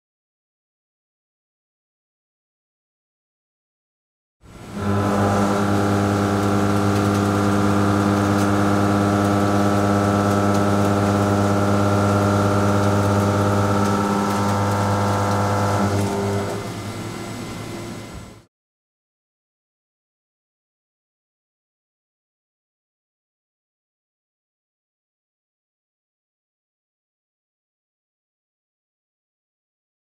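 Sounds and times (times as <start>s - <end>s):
milling machine hum: 4.5s - 18.4s
quiet machine noise: 4.5s - 18.5s.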